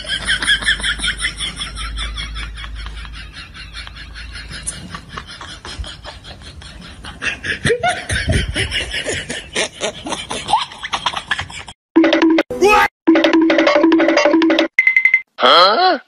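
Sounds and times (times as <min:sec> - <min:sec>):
people laughing and snickering: 0:00.0 - 0:11.8.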